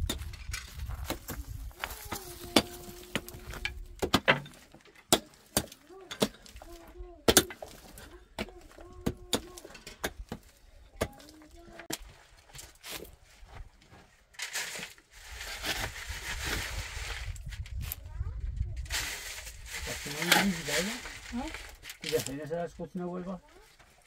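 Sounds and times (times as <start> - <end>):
pickaxes striking stony earth: 0.0 - 13.6, 14.3 - 17.2.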